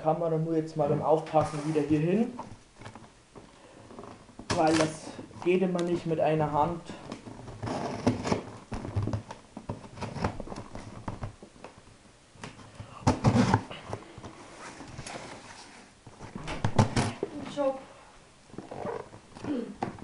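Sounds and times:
cardboard rustling and scraping: 1.3 - 3.1, 7.1 - 11.4, 13.1 - 17.7.

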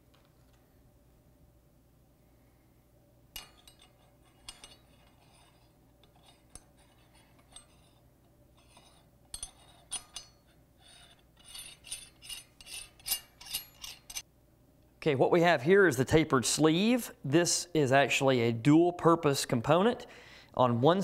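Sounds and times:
steel parts clinking and scraping: 3.4 - 14.2.

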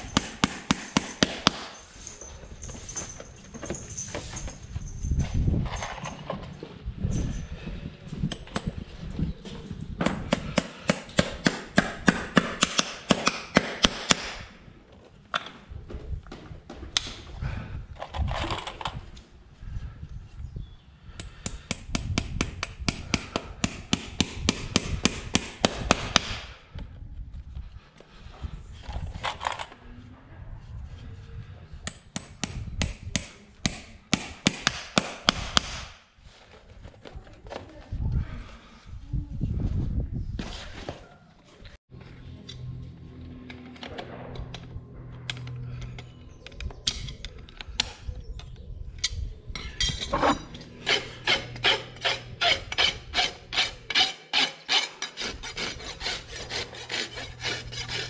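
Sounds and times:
hammer striking horseshoe: 0.0 - 1.9, 8.3 - 8.8, 10.0 - 14.5, 21.2 - 26.4, 31.8 - 36.0.

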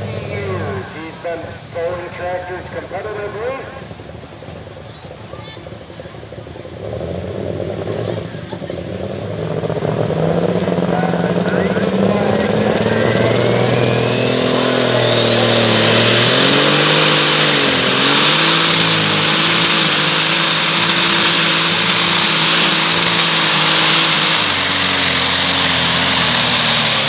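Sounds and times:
tractor engine at full power: 0.0 - 27.0
turbo whine: 10.6 - 27.0.

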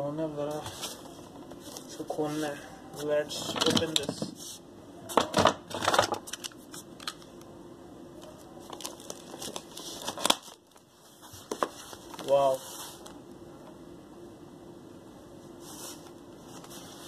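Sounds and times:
packing tape and foam tearing: 8.6 - 10.8.

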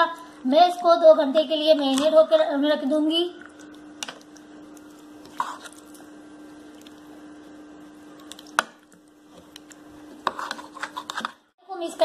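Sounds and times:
spoon stirring wet marinade: 3.4 - 7.2, 8.1 - 11.4.

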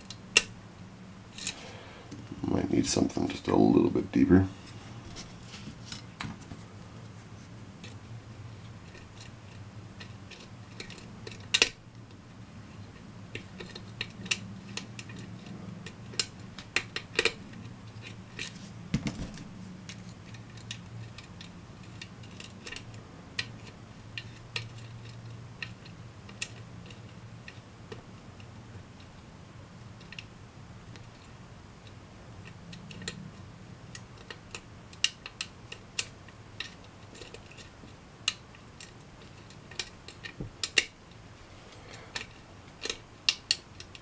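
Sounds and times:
faint steady hum: 0.0 - 44.0
lock pick clicking and scraping: 8.8 - 12.2, 19.4 - 29.1, 32.4 - 33.2, 33.9 - 41.2, 42.1 - 44.0.

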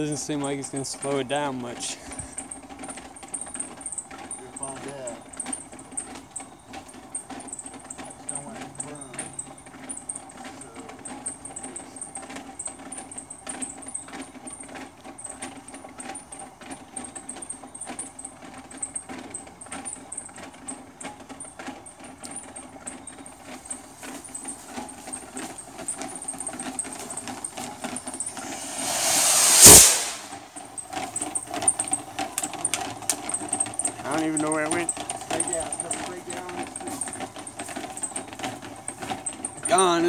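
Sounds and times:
steady high trill: 28.2 - 30.5
rocket motor hiss and whoosh: 28.2 - 30.6
faint irregular clicks: 31.0 - 40.0.

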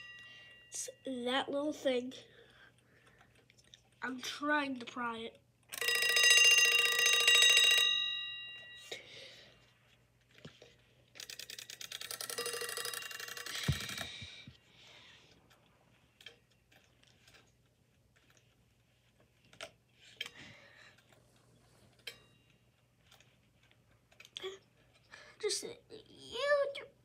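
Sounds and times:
alarm clock bell ringing: 0.0 - 1.3, 5.7 - 9.1, 11.3 - 14.1.

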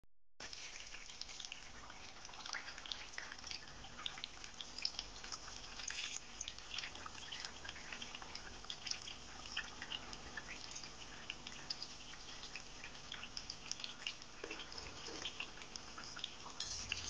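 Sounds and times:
hot oil sizzling: 3.4 - 7.4, 8.1 - 17.0.

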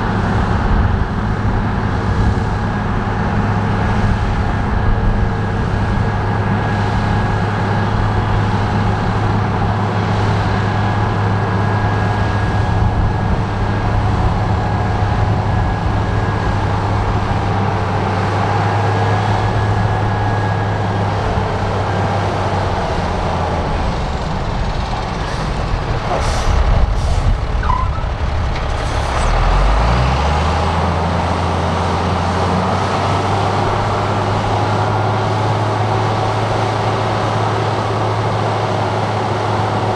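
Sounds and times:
diesel machinery engine drone: 0.0 - 39.9.

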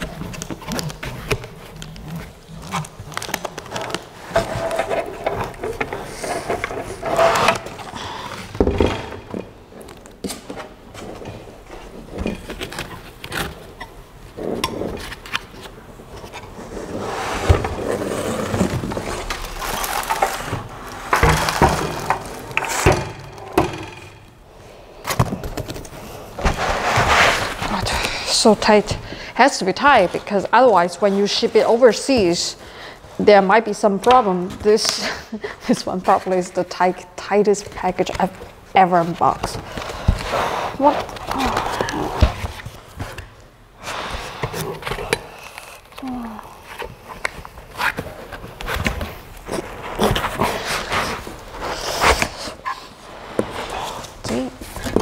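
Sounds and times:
cardboard rustling and scraping: 0.0 - 9.6, 10.6 - 23.7, 25.1 - 32.4, 37.7 - 55.0.

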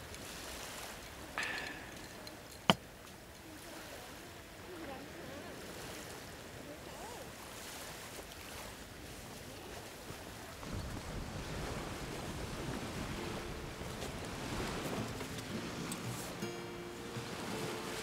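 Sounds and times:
surf washing on beach: 0.0 - 2.6, 3.4 - 18.0
wind rumble on microphone: 10.6 - 16.1.

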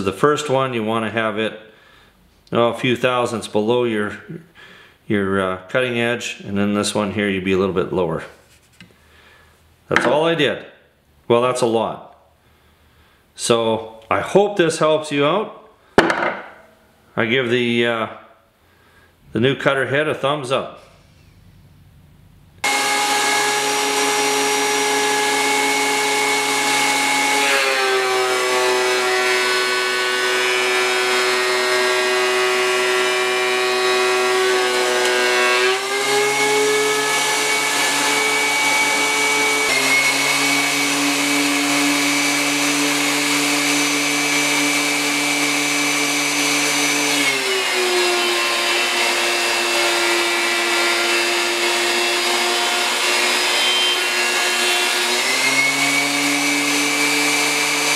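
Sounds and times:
thickness planer motor whine: 22.6 - 57.9.

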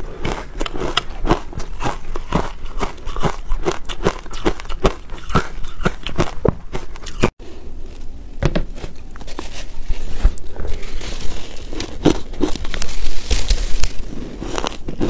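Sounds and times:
crunching shaved ice: 0.0 - 7.3, 9.2 - 15.0.

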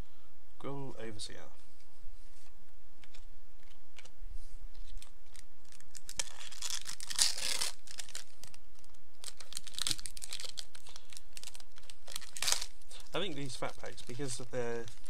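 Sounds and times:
foil wrapper tearing: 4.8 - 15.0.

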